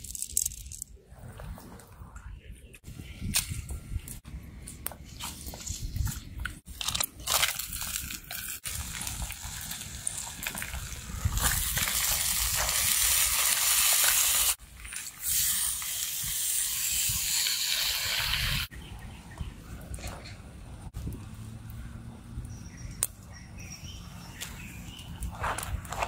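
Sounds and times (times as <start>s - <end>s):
food sizzling in a hot pot: 11.9s - 14.6s.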